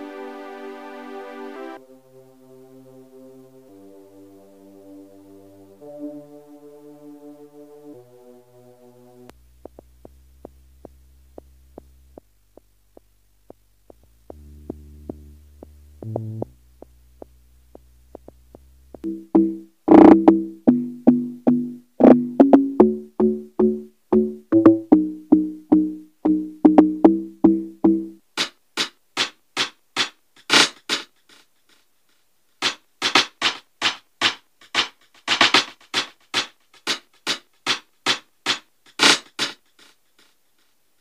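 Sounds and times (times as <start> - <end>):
crisp high percussion ticks: 9.3 - 28.5
low sustained bass note: 14.3 - 21.5
short synth notes: 19.0 - 28.2.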